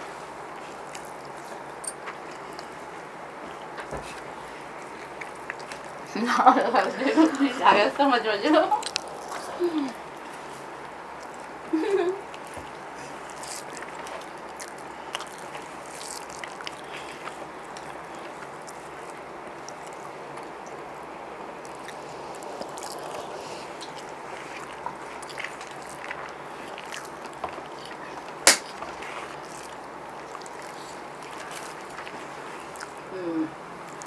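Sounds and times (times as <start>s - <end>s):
chewing: 0.6s - 6.2s, 8.7s - 34.0s
fingers rustling on leaves: 8.6s - 33.1s.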